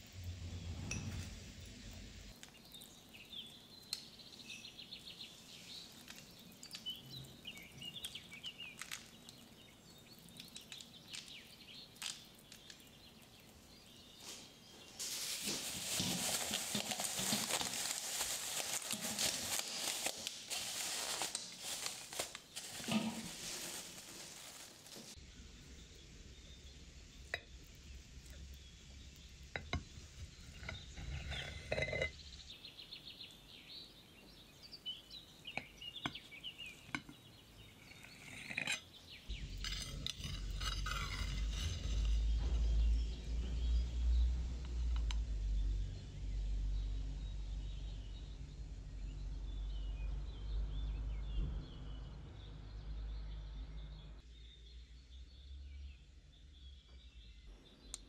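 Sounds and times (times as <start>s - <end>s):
low rumble: 0.0s - 2.3s.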